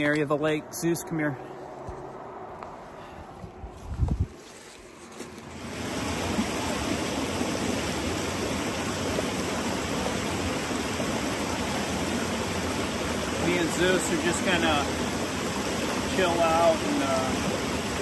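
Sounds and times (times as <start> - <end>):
creek water rushing: 5.1 - 18.0.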